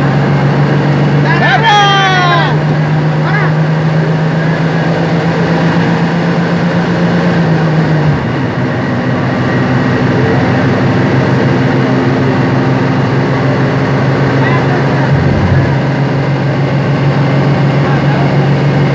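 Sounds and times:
bus diesel engine under load: 0:00.0 - 0:18.9
road noise: 0:00.0 - 0:18.9.

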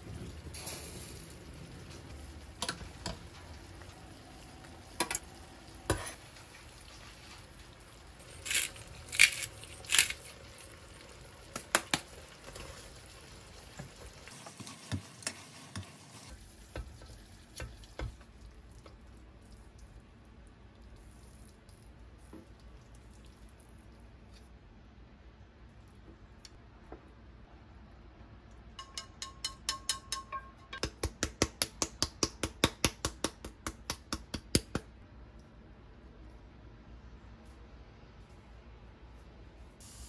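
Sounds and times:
sauce sizzling in a frying pan: 0:00.0 - 0:09.0, 0:10.2 - 0:18.7.

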